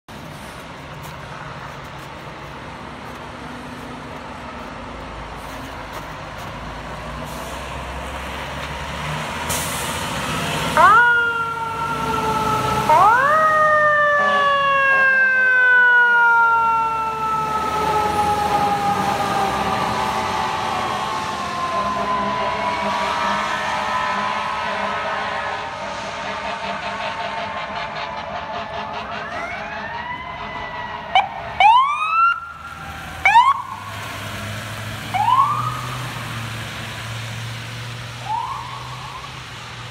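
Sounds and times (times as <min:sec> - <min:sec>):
diesel engine rumbling: 0:00.0 - 0:39.9
air brake hiss: 0:07.2 - 0:07.7, 0:09.5 - 0:10.1
fire engine siren winding: 0:10.7 - 0:25.5, 0:35.1 - 0:36.1.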